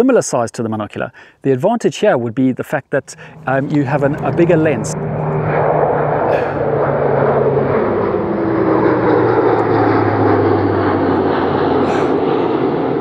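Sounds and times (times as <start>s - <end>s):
airplane engine drone: 3.0s - 13.0s.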